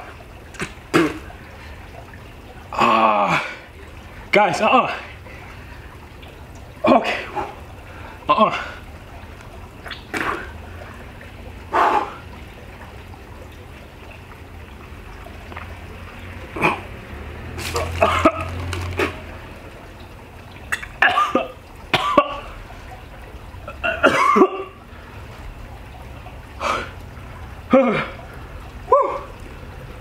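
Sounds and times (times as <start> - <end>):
person clearing throat: 21.0 - 22.4, 23.8 - 24.8
person coughing: 21.0 - 22.4, 23.8 - 24.8.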